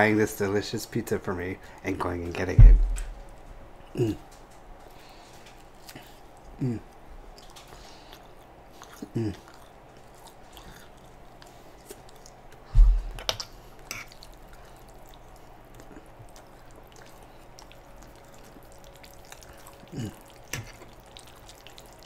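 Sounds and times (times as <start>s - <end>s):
dull thump: 2.6s - 3.2s, 12.8s - 13.2s
chewing and wet mouth clicks: 5.3s - 22.0s.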